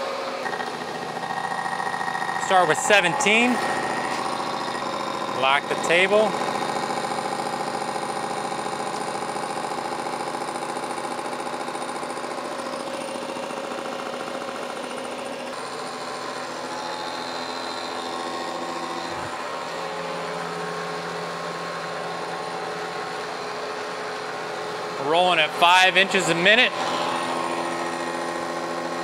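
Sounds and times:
milling machine spindle hum: 0:00.0 - 0:29.0
milling cutter cutting steel: 0:00.4 - 0:10.6.

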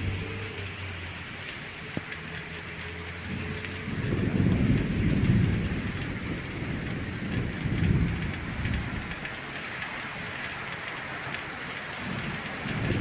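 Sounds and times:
rain hissing: 0:00.0 - 0:13.0
rolling thunder: 0:03.2 - 0:13.0.

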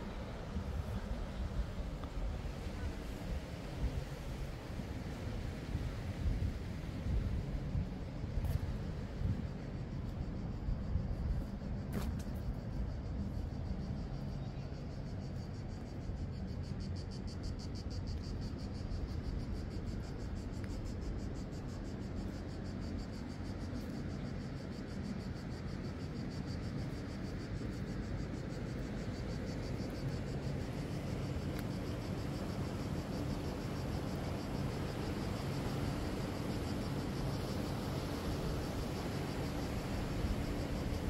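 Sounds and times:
cicadas singing: 0:12.4 - 0:41.0.

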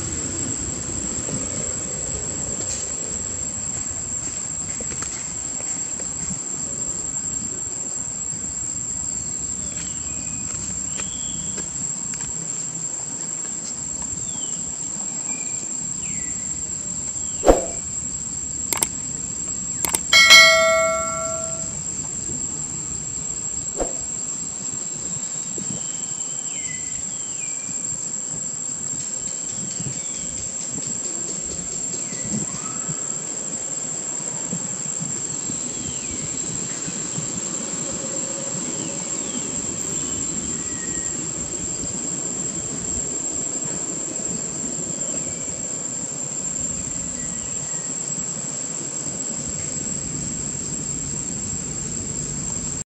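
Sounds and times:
insect chirping calls: 0:03.2 - 0:52.8
high-pitched insect drone: 0:14.2 - 0:23.2
sharp clicks: 0:18.8 - 0:19.0, 0:19.8 - 0:20.1
ringing bell chime: 0:20.1 - 0:21.8.

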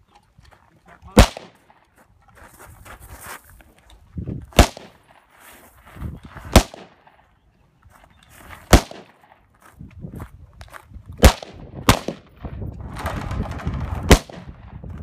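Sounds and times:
gunshots: 0:01.1 - 0:01.7, 0:04.6 - 0:05.2, 0:06.5 - 0:07.1, 0:08.7 - 0:09.3, 0:11.2 - 0:14.7
shuffling on gravel: 0:01.8 - 0:06.6, 0:07.7 - 0:08.8, 0:09.4 - 0:11.2.

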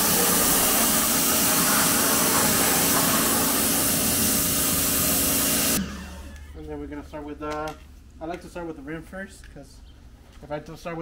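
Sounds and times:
pressure washer spraying water: 0:00.0 - 0:05.8
faint motor hum: 0:00.0 - 0:08.2.

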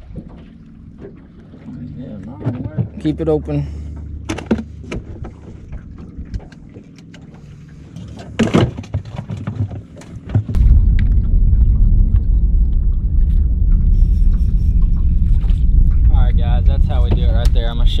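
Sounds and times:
knocks and clicks on boat: 0:00.0 - 0:03.3, 0:03.9 - 0:11.1, 0:16.9 - 0:17.8
wind buffeting microphone: 0:10.4 - 0:18.0.

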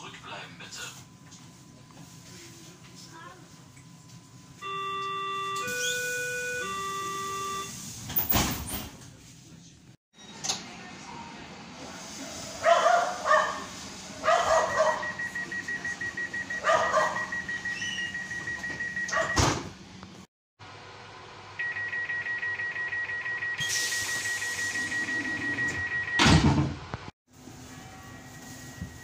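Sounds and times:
rapid high-pitched door beeping: 0:04.6 - 0:07.7, 0:14.4 - 0:19.6
train door shutting: 0:05.0 - 0:09.0.

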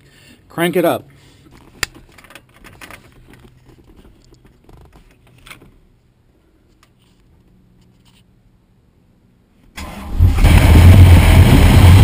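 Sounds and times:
keys clicking and rattling: 0:01.6 - 0:05.7.

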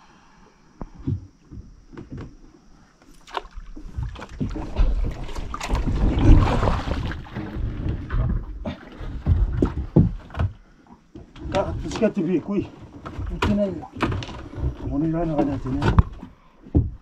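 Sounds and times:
water splashing: 0:03.1 - 0:10.1.

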